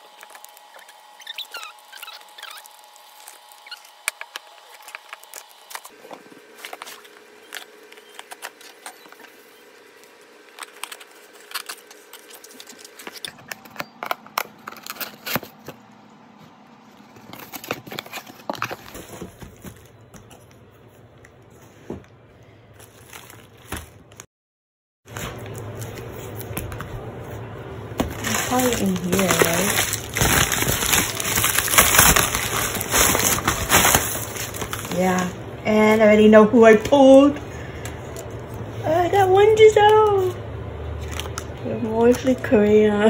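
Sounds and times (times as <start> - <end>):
packaging crinkling and tearing: 0.0 - 16.0, 17.0 - 20.5, 22.8 - 24.2, 28.0 - 35.4, 40.2 - 42.4.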